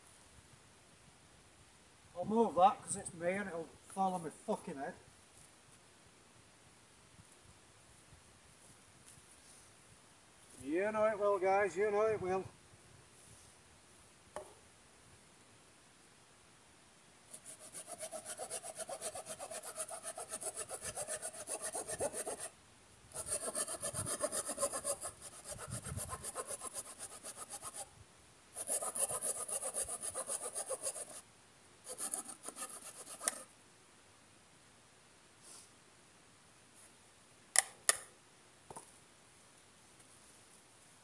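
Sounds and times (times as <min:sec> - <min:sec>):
hand saw cutting wood: 0:17.3 - 0:22.5, 0:23.1 - 0:27.9, 0:28.6 - 0:31.2, 0:31.9 - 0:33.5.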